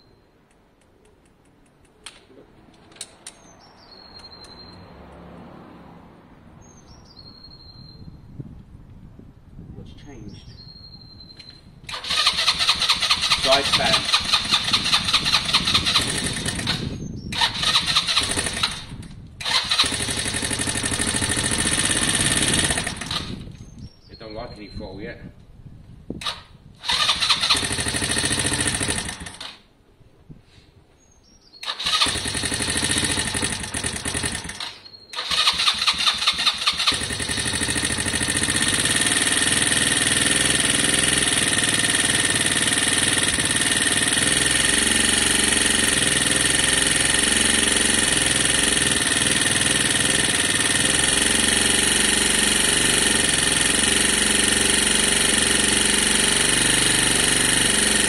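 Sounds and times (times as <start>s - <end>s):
motorcycle electric starter cranking: 11.8s - 23.8s, 26.2s - 29.7s, 31.6s - 58.0s
motorcycle engine idling: 35.7s - 58.0s.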